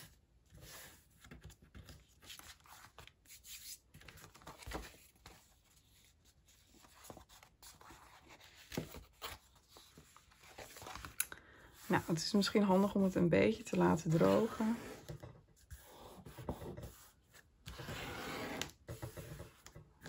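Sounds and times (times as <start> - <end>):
paper rustling: 1.2 - 15.2.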